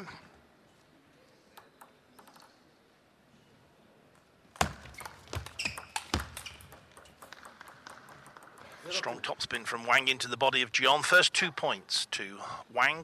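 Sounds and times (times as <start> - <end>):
table tennis ball clicking: 4.6 - 8.9.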